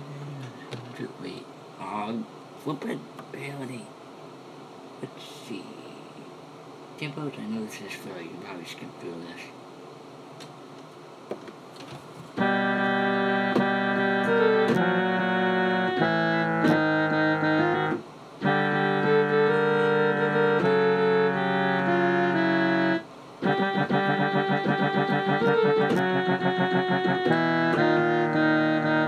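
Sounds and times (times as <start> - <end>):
keyboard synthetic brass chords: 12.4 - 29.0.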